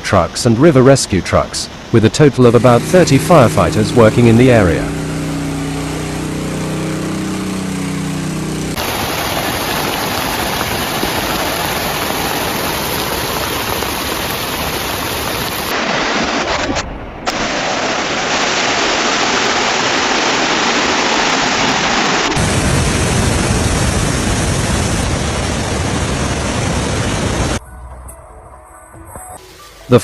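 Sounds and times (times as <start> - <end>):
low hum with steady tones: 0.0 - 8.8
rushing flood water: 8.8 - 23.0.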